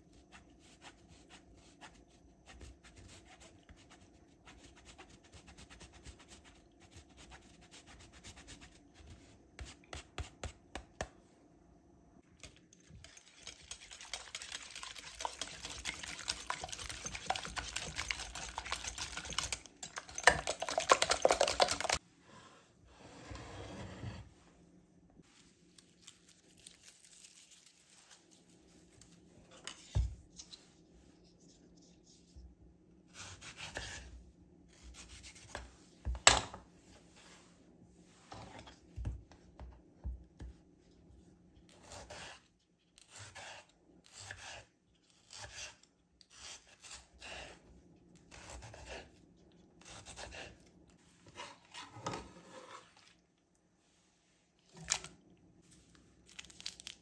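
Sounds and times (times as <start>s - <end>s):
knife sawing through tomato: 41.7s - 47.6s, 48.3s - 49.1s, 49.8s - 50.6s.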